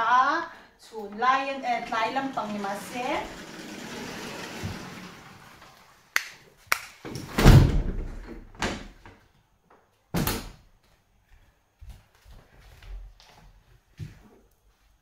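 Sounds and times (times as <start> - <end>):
door panels rumbling along track: 1.6 - 5.8
glass doors thudding shut: 7.3 - 8.9.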